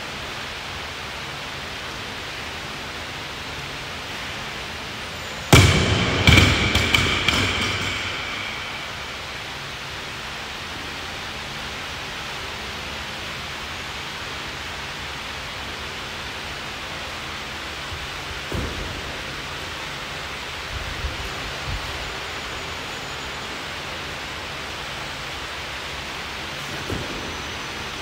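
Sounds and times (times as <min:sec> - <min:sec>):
barbell thudding on rubber floor: 0:05.5 - 0:09.6.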